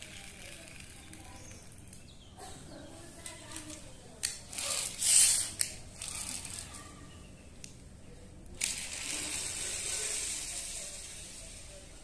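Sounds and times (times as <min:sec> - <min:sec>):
toy car wheels hissing on tiles: 0:00.0 - 0:01.6, 0:03.6 - 0:06.8, 0:08.6 - 0:12.0
toy car click: 0:00.0 - 0:02.0, 0:03.2 - 0:06.8, 0:08.6 - 0:11.6.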